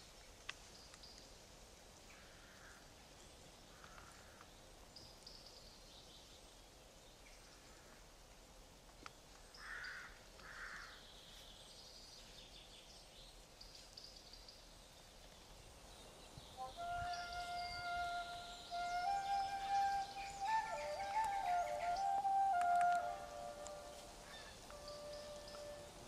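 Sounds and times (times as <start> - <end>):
small birds chirping: 9.0 - 25.9.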